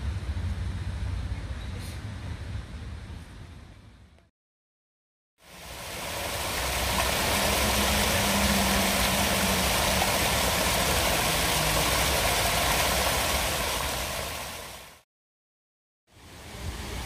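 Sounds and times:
fountain water splashing: 0:05.4 - 0:15.0, 0:16.2 - 0:17.0.

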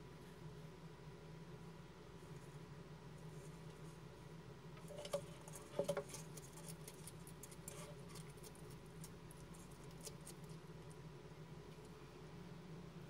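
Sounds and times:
lizard crunching food: 0:04.8 - 0:11.1.

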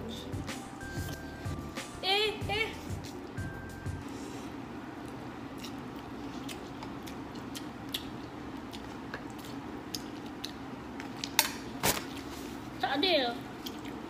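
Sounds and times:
low hum: 0:00.0 - 0:01.8
people chewing: 0:04.0 - 0:11.4, 0:13.6 - 0:14.0.

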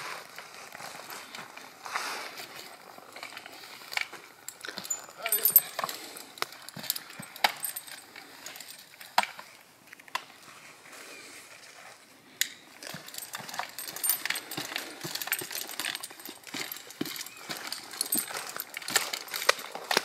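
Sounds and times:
metal pieces jangling: 0:04.4 - 0:09.0, 0:12.8 - 0:20.0.

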